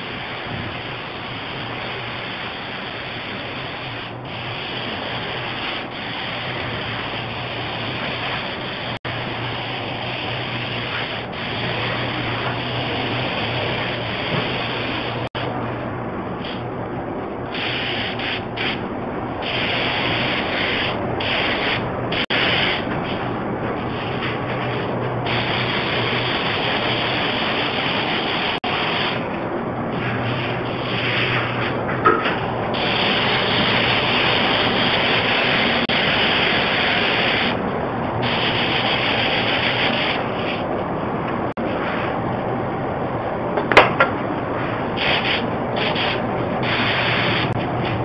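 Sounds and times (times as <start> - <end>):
spray gun hissing: 0.0 - 15.4, 17.5 - 29.3, 32.7 - 37.6, 38.2 - 40.7, 45.0 - 47.8
background noise with low hum: 0.0 - 48.0.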